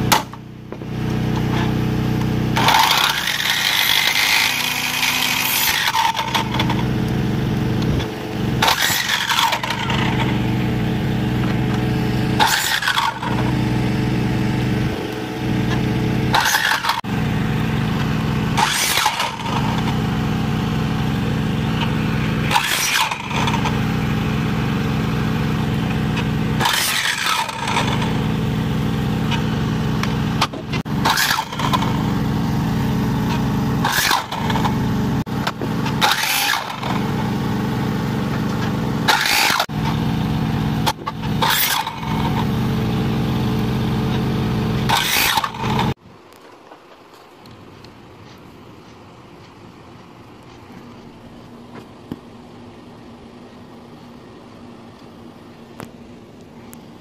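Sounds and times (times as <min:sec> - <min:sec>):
saw blade cutting wood: 0:00.0 - 0:00.4, 0:01.4 - 0:40.2, 0:40.8 - 0:46.0
saw motor hum: 0:00.0 - 0:46.0.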